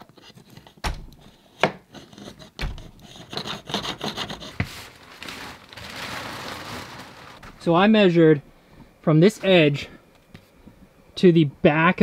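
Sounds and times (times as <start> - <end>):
wire scraping against wood: 1.9 - 5.6.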